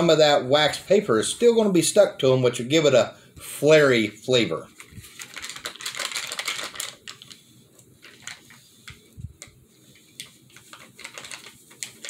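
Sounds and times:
paper crinkling: 0:04.7 - 0:12.0
soft clicks and rustles: 0:04.8 - 0:12.0.

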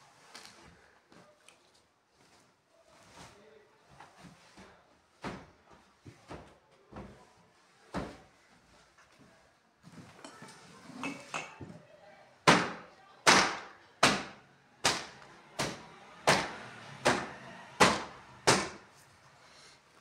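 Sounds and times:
cloth slapping wooden door: 0:12.4 - 0:18.8.

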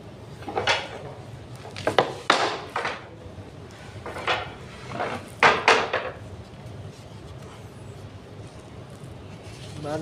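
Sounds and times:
wooden furniture parts knocking: 0:01.8 - 0:03.1, 0:04.1 - 0:06.2.

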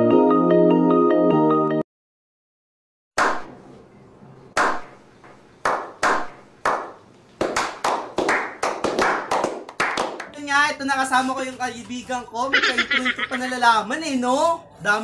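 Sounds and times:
slow hand claps: 0:05.6 - 0:10.4.

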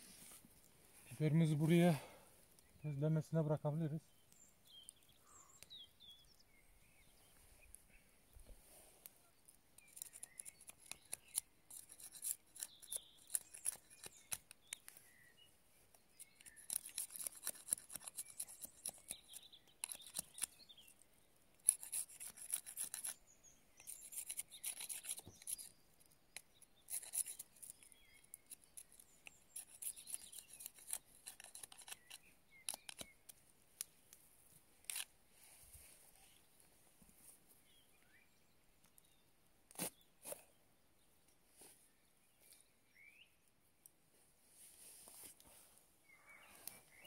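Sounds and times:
knife shaving wood: 0:09.4 - 0:15.2, 0:15.8 - 0:34.1, 0:34.8 - 0:35.1, 0:39.7 - 0:40.6.

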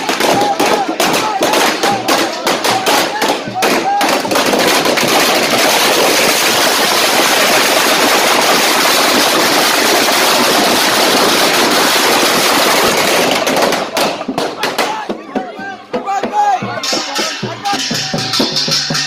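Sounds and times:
firecracker bangs: 0:00.0 - 0:15.2
firecrackers crackling: 0:00.0 - 0:15.2.

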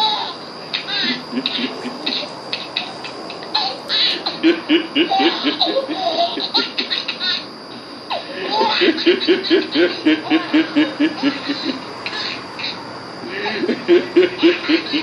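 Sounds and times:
hearty laughter: 0:01.0 - 0:02.4, 0:03.6 - 0:07.4, 0:08.1 - 0:11.9, 0:13.2 - 0:15.0.

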